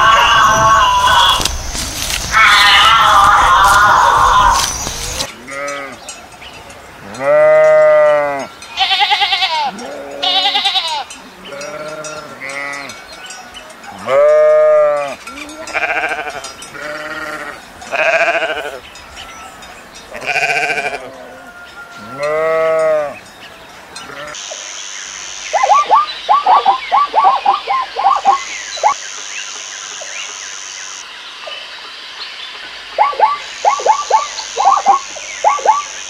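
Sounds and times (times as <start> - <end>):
sheep and goats bleating: 0.0 - 6.1, 7.0 - 13.0, 13.9 - 18.9, 20.0 - 23.2, 24.0 - 24.4.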